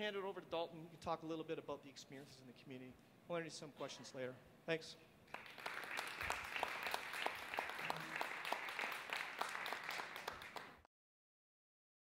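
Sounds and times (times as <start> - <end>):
audience applauding: 5.3 - 10.9.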